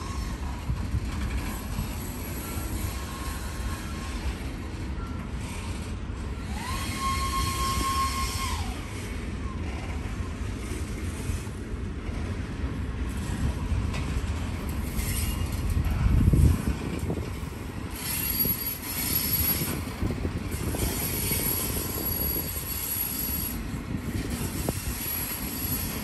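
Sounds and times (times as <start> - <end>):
freight train rumbling on rails: 0.0 - 26.0.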